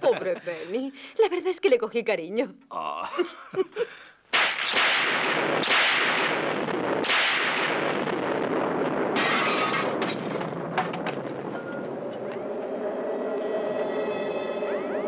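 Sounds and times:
loud crash: 4.3s - 11.9s
storm rushing roar: 5.1s - 15.0s.

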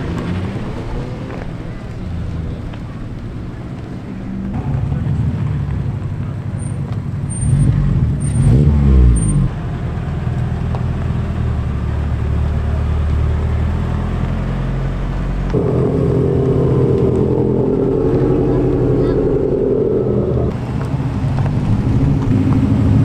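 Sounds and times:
car engines pulling away: 0.0s - 23.0s
engine revving hard: 7.4s - 9.5s, 15.5s - 20.6s
low steady engine running: 15.5s - 20.5s
loud engine note: 15.5s - 20.6s.

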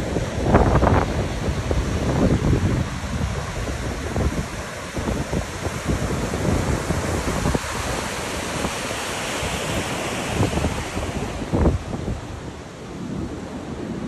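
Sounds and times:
surf breaking and washing: 0.0s - 14.0s
wind buffeting microphone: 0.0s - 14.0s.

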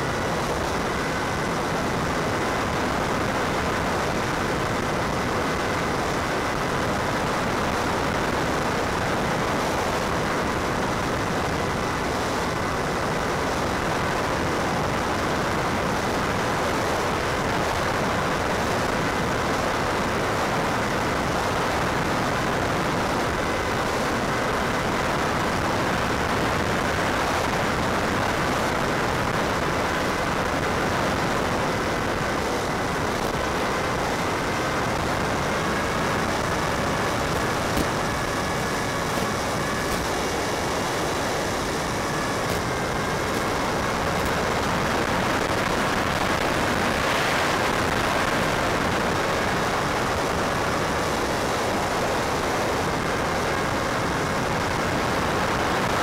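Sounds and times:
steady rushing noise: 0.0s - 56.0s
faint whining tones: 21.0s - 55.6s.

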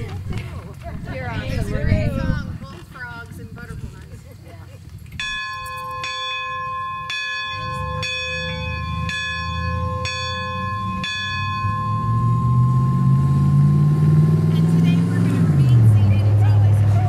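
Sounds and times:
church bell ringing: 5.2s - 14.5s
vehicle engine drone: 6.8s - 17.0s.

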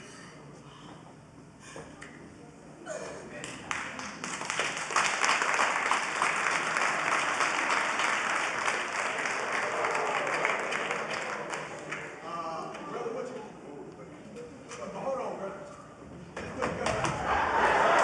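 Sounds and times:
audience applauding: 3.6s - 12.3s, 16.8s - 18.0s.

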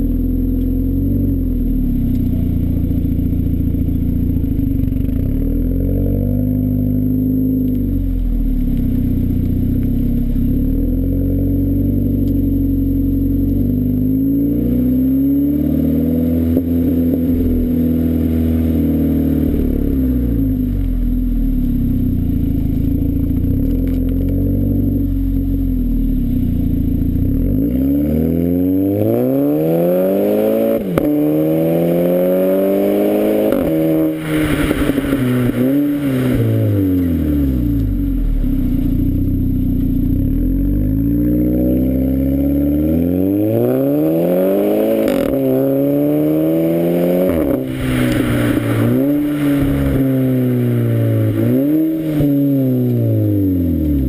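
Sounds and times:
car engine revving with upshifts: 0.0s - 54.0s
exhaust crack on shifts: 16.4s - 27.4s, 33.4s - 42.3s, 47.2s - 54.0s.

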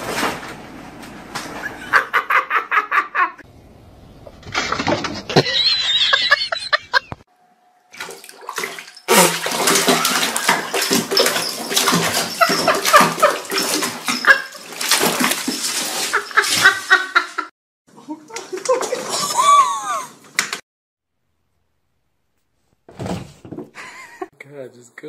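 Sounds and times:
water splashing in a bathtub: 7.9s - 17.2s, 18.2s - 20.6s.

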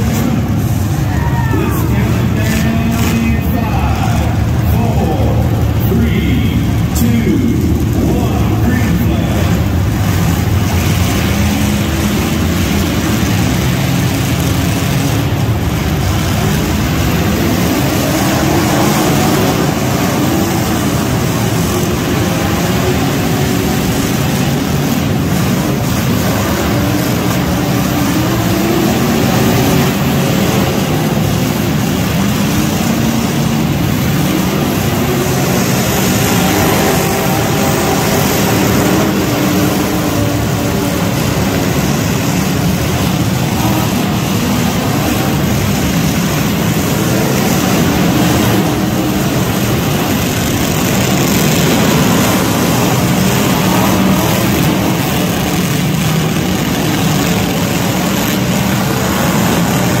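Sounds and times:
truck engines revving: 0.0s - 60.0s.

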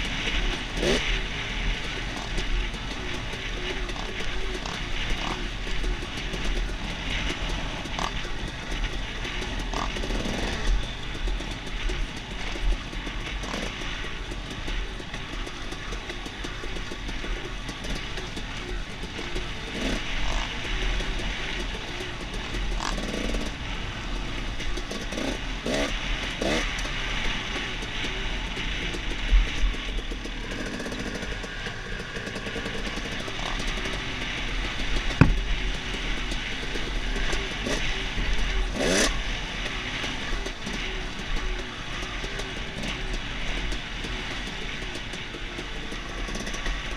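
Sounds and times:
dirt bike engine: 0.0s - 46.9s
bike knocks and rattles: 34.9s - 35.6s.

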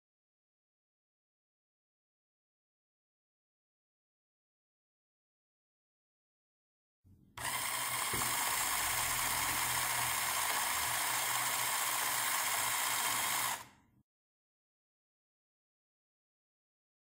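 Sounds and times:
toy motor whirring: 7.4s - 13.8s.

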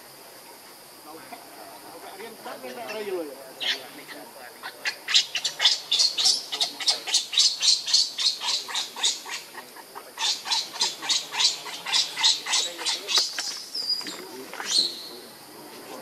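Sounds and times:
baby monkey squealing: 4.8s - 9.6s, 10.2s - 15.1s.

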